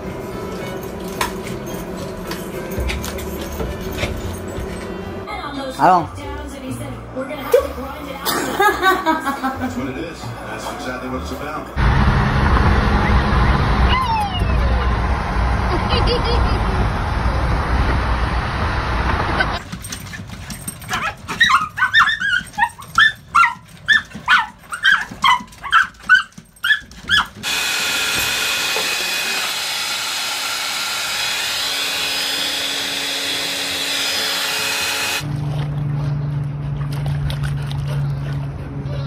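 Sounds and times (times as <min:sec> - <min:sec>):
car road rumble: 0:11.8 - 0:19.6
small dog yapping: 0:20.9 - 0:27.4.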